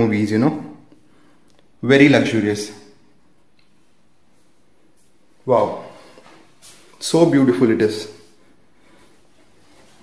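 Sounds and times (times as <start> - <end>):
man's voice: 5.4 - 6.2, 7.0 - 8.3.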